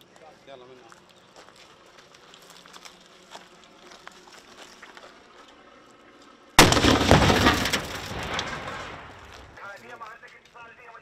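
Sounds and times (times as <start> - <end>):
loud explosion: 6.6 - 9.6
crackling rush of debris: 6.6 - 10.6.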